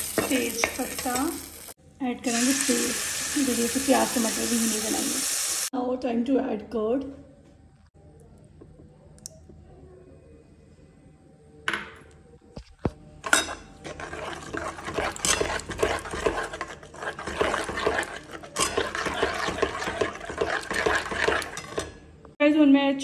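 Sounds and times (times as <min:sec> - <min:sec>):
steel ladle scraping a wok: 0:13.2 - 0:22.0.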